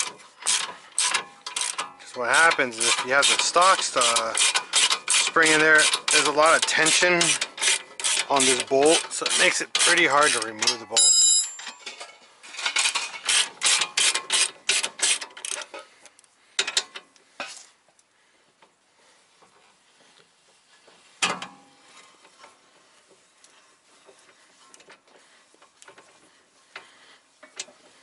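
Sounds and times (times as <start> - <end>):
ratchet wrench clicking: 0.0 - 10.8, 12.6 - 15.8.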